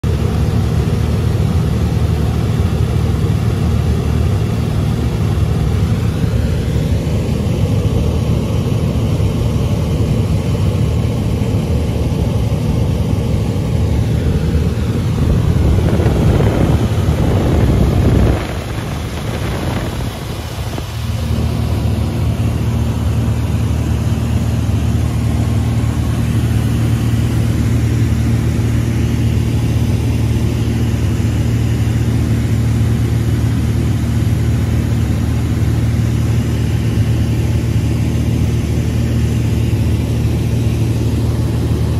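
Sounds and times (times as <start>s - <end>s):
airplane engine and propeller droning: 0.0s - 41.9s.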